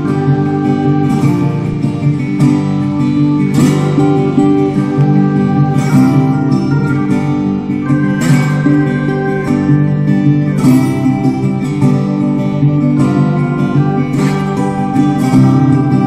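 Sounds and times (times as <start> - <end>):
acoustic guitar music: 0.0 - 16.0.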